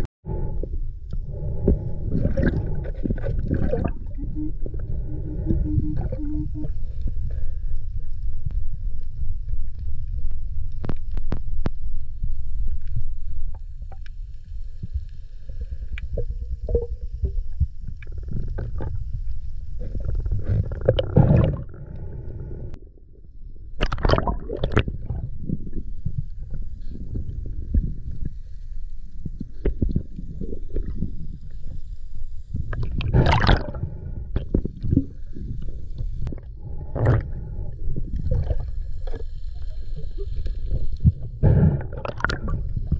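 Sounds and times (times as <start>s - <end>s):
underwater rumble of moving water: 0.0s - 42.9s
underwater rushing bursts: 1.3s - 7.0s, 19.9s - 22.6s, 32.8s - 34.4s, 39.9s - 42.9s.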